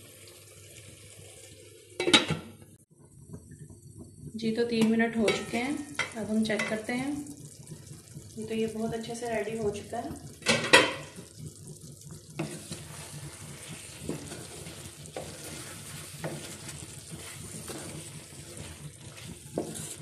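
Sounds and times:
steady sizzle: 0:00.0 - 0:20.0
spatula scraping through curry: 0:12.4 - 0:20.0.

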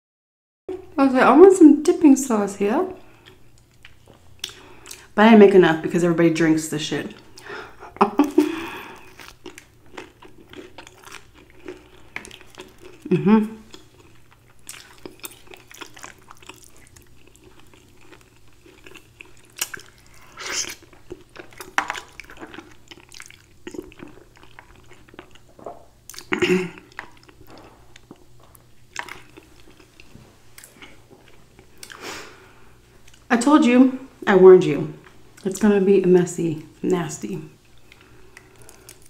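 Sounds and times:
wet chewing and lip smacks: 0:03.1 - 0:05.1, 0:08.2 - 0:13.1, 0:13.7 - 0:32.0, 0:37.6 - 0:39.0.

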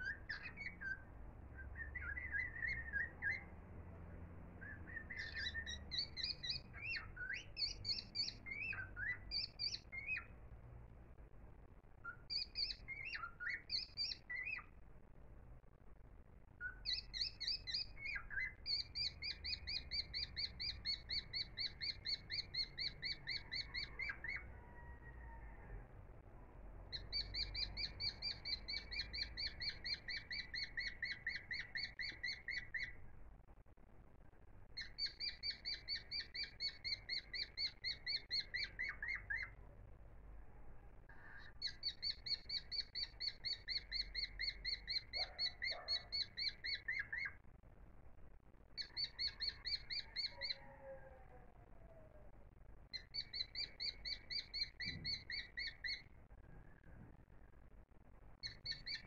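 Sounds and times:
animal chirping: 0:00.0 - 0:01.0, 0:01.6 - 0:03.6, 0:04.6 - 0:10.3, 0:12.0 - 0:14.7, 0:16.6 - 0:24.7, 0:26.9 - 0:33.0, 0:34.8 - 0:39.6, 0:41.1 - 0:47.4, 0:48.8 - 0:52.1, 0:52.9 - 0:56.2, 0:58.4 - 0:59.0
faint low rumble: 0:00.0 - 0:59.0.

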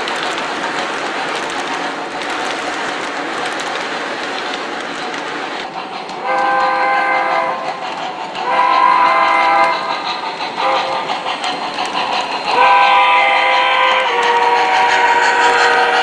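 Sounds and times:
model train rumbling on track: 0:00.0 - 0:16.0
chord steam whistle blasts: 0:06.2 - 0:07.6, 0:08.4 - 0:09.9, 0:12.5 - 0:16.0.

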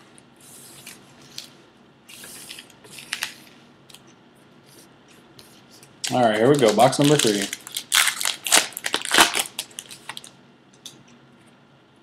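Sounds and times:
wrapper rustle: 0:06.1 - 0:10.3.

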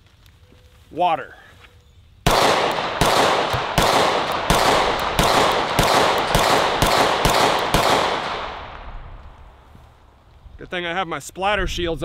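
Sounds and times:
pistol shots with echo: 0:02.3 - 0:08.9.

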